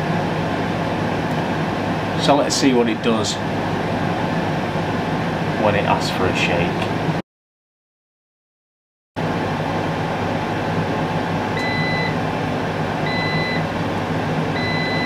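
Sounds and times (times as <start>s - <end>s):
air fryer fan whirring: 0.0s - 7.2s, 9.2s - 15.0s
short beeps: 11.6s - 12.2s, 13.1s - 13.6s, 14.6s - 15.0s.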